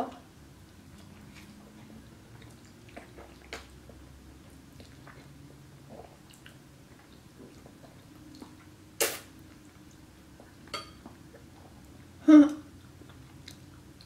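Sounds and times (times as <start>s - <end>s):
open-mouthed chewing: 0.9s - 14.0s
wet mouth sounds: 1.0s - 4.0s, 4.7s - 10.6s.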